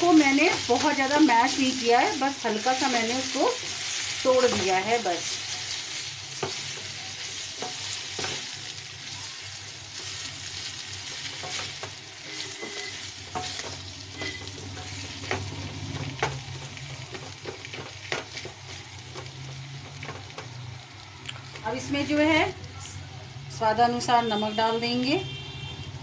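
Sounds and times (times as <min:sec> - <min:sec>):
potatoes sizzling in oil: 0:00.0 - 0:22.6
spatula scraping metal pan: 0:11.3 - 0:15.5.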